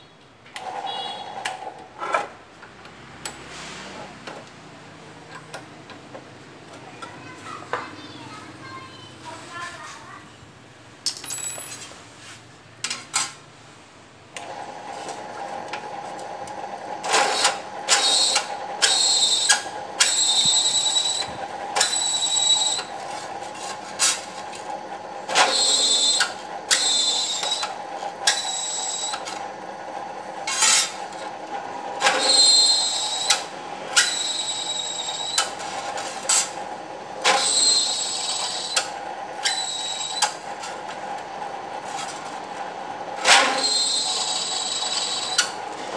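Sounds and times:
drill press humming: 0:14.4 - 0:45.9
drill bit screeching on metal: 0:18.0 - 0:22.9, 0:25.4 - 0:27.7, 0:28.3 - 0:29.2, 0:32.1 - 0:33.4, 0:34.0 - 0:35.5, 0:37.3 - 0:38.8, 0:39.4 - 0:40.4, 0:43.3 - 0:45.6.

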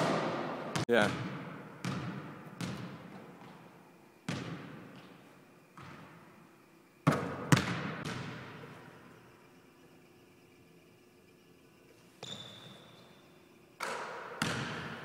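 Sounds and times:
basketball bouncing on hardwood: 0:00.0 - 0:03.6.

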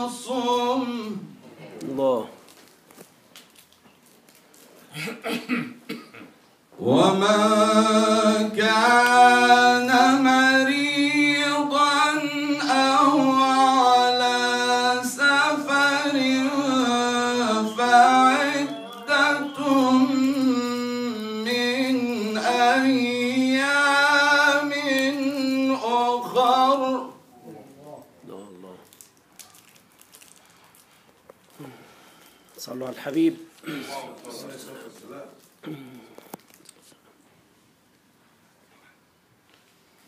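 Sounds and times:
man chanting melodically: 0:00.0 - 0:01.4, 0:06.8 - 0:27.5
breath: 0:30.2 - 0:32.6, 0:35.7 - 0:36.4.

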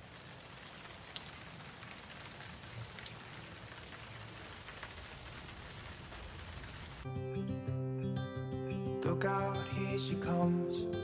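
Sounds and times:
steady rain: 0:00.0 - 0:07.1.

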